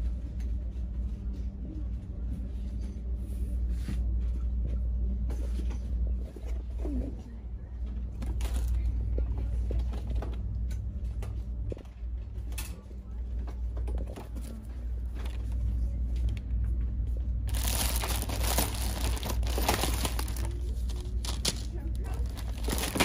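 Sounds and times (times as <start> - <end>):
low hum: 0.0 - 23.0
rustling and crinkling: 17.5 - 23.0.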